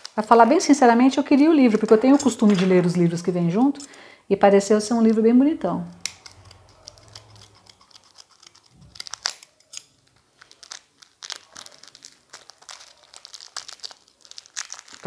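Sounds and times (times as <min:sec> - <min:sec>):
cellophane crinkling and tearing: 0:00.0 - 0:02.9, 0:06.1 - 0:15.0.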